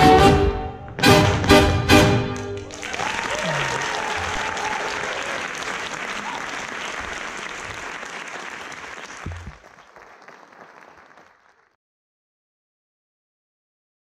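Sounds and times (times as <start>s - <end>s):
audience applauding: 2.4s - 11.8s.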